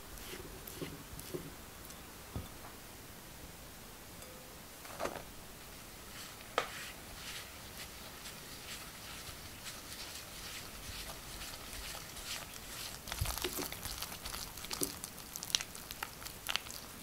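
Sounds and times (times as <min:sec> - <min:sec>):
spatula scraping and rustling: 0:00.0 - 0:02.0, 0:04.8 - 0:15.0.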